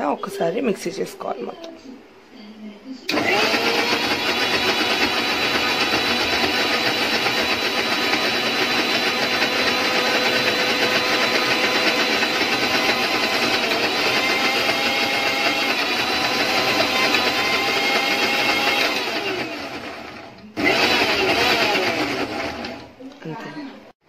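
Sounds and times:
mixer grinder motor whining: 3.1s - 22.9s.

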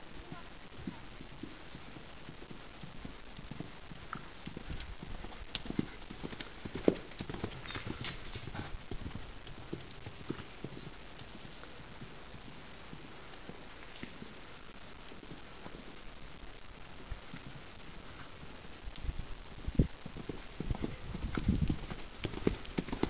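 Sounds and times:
horse hoofbeats on sand: 0.2s - 14.4s, 19.7s - 23.0s.

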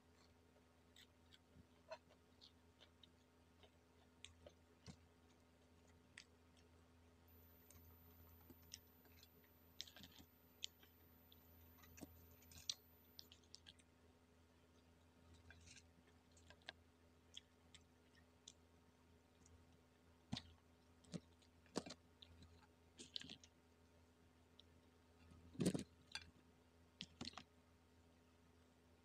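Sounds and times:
low steady hum: 0.0s - 29.0s
fried chicken crunching and chewing: 7.6s - 11.0s, 11.7s - 13.9s, 15.3s - 18.6s, 20.3s - 23.5s, 25.5s - 26.3s, 27.0s - 27.4s.

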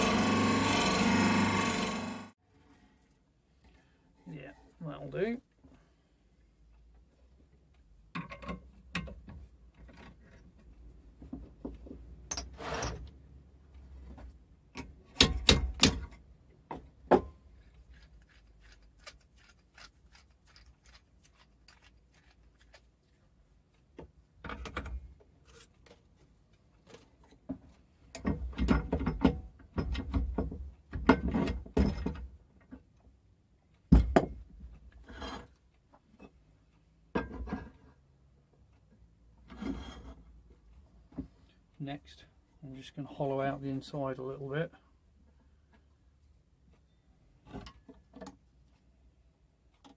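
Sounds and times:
metallic clunks and rattles: 28.2s - 32.3s.

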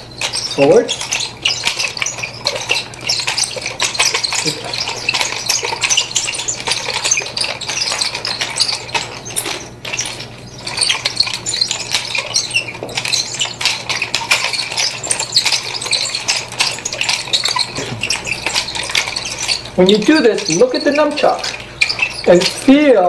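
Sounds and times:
nunchaku chain rattling: 0.0s - 23.0s
steady low hum: 0.0s - 23.0s.

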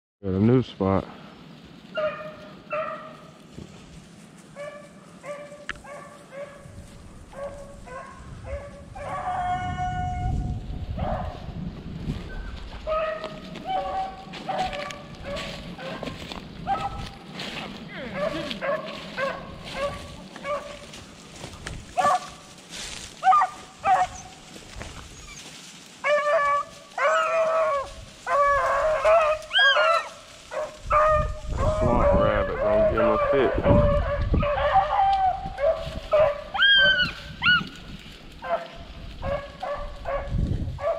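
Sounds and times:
beagle baying: 1.9s - 3.4s, 4.5s - 6.7s, 7.3s - 10.4s, 12.8s - 17.2s, 18.0s - 21.0s, 22.0s - 22.4s, 23.2s - 24.5s, 25.2s - 37.7s.

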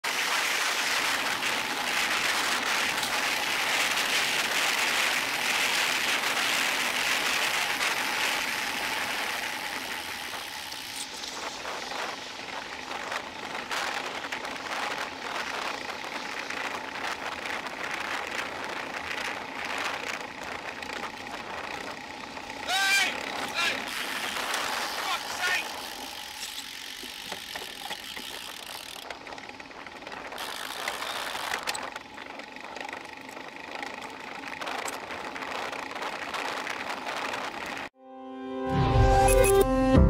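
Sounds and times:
traffic on a wet road: 0.0s - 28.4s.

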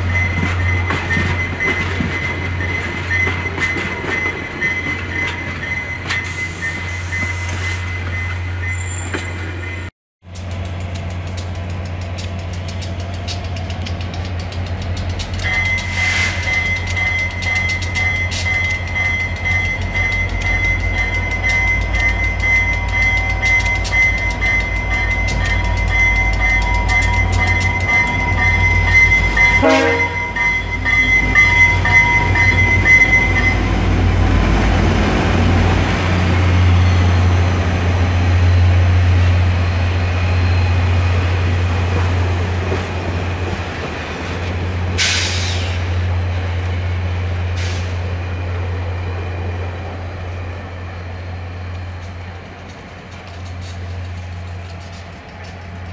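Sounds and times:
diesel locomotive engine rumbling: 0.0s - 55.9s
train cars rolling by: 0.0s - 55.9s
high-pitched signal: 15.4s - 34.2s.

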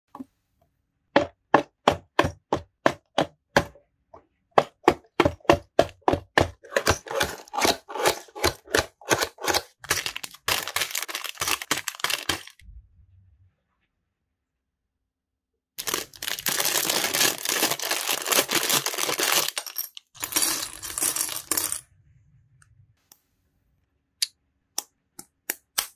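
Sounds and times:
cardboard crackling and rustling: 6.2s - 12.6s, 15.8s - 19.6s.

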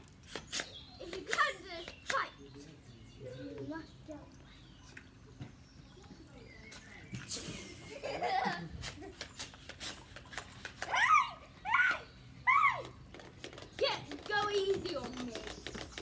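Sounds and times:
water guns squirting: 0.0s - 2.4s, 7.2s - 11.3s, 12.5s - 16.0s
girl laughing and squealing: 10.9s - 13.0s
girl shrieking: 10.9s - 13.0s.

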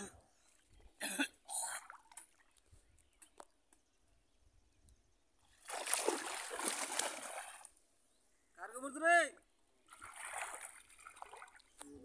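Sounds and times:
shallow water splashing: 5.5s - 7.8s, 9.8s - 11.8s.

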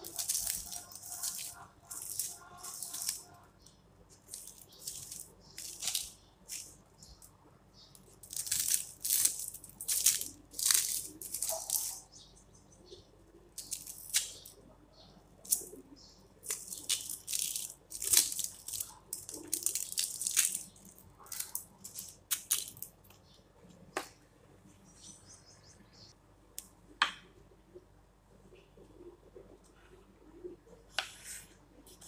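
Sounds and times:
onion skin crackling and tearing: 0.0s - 7.3s, 7.9s - 12.1s, 13.6s - 14.6s, 16.4s - 23.2s.

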